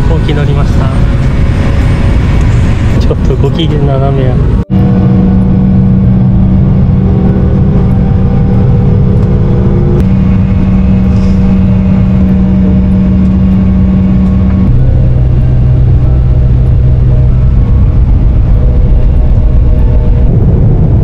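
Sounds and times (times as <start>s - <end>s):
aircraft engines rumbling: 0.0s - 21.0s
cabin hum: 4.3s - 21.0s.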